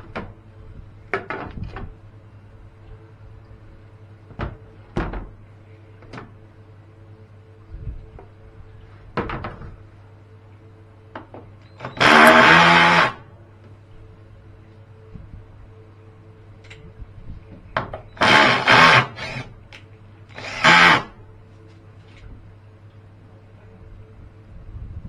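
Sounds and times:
small electric motor running: 0:12.0 - 0:13.2, 0:18.2 - 0:19.5, 0:20.4 - 0:21.1.

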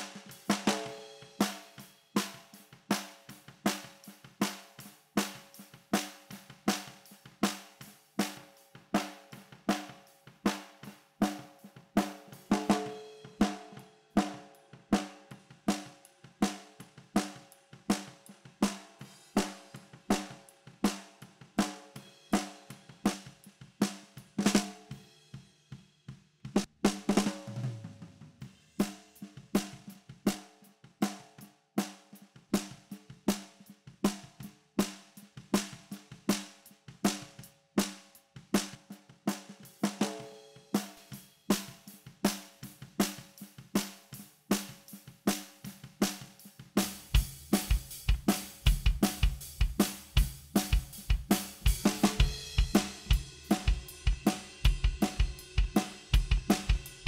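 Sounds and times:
acoustic drum kit groove: 0:00.0 - 0:57.0
heavy drum hit with low ring: 0:46.8 - 0:57.0.

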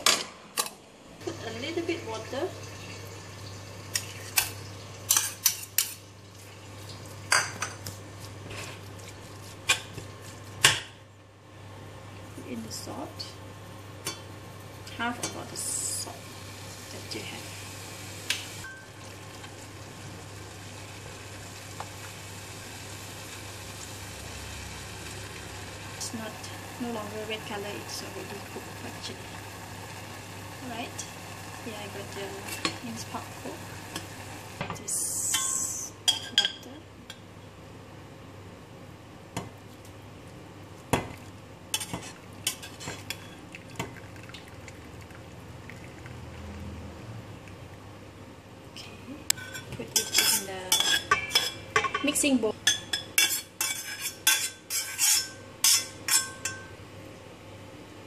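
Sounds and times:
saucepan simmering hiss: 0:01.2 - 0:36.8
liquid trickling: 0:43.5 - 0:46.7
metal spoon clinking on saucepan: 0:49.3 - 0:56.8.

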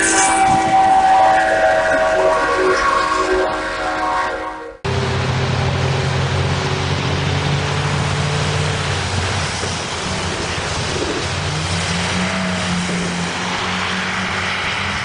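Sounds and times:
tyres hissing on wet road: 0:00.0 - 0:03.8, 0:04.9 - 0:15.0
car engine hum: 0:04.8 - 0:15.0.

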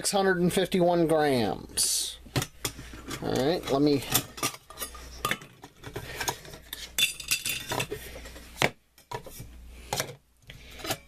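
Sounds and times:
metal pots clinking and rattling: 0:02.6 - 0:08.0.

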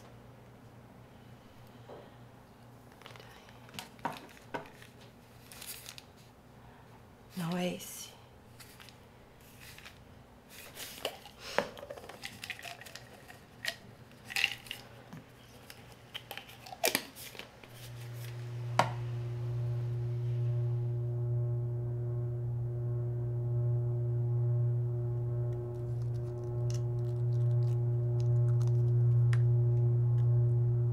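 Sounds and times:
plastic pill bottle clicks and scrapes: 0:08.6 - 0:10.0, 0:10.6 - 0:18.0
low musical drone: 0:17.9 - 0:30.9.

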